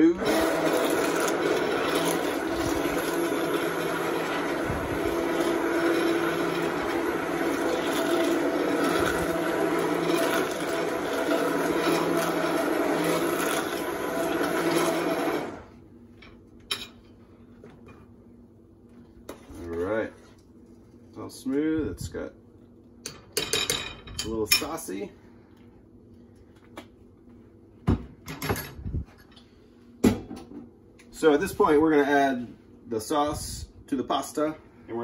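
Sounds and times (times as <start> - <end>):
immersion blender running: 0.0 - 15.7.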